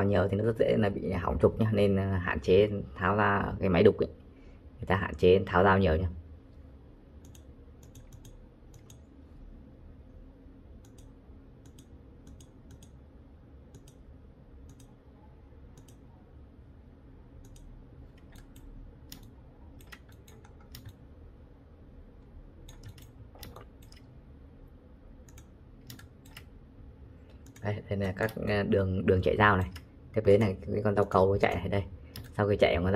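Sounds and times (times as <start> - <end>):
low steady hum: 0.0 - 32.9
mouse and keyboard clicks: 7.2 - 9.1, 10.8 - 13.0, 14.6 - 15.0, 17.4 - 21.0, 22.6 - 24.1, 25.2 - 26.5.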